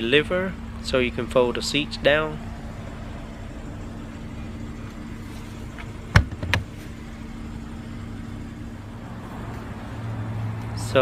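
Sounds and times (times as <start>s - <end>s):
steady low hum: 0.0s - 10.6s
seatback knocking: 5.7s - 6.8s
latch click: 5.8s - 6.7s.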